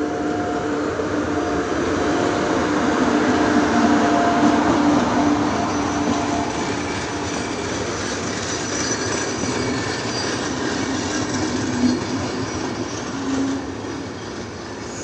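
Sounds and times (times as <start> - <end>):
train wheels rumbling on rails: 0.0 - 15.0
high squealing tones: 5.3 - 15.0.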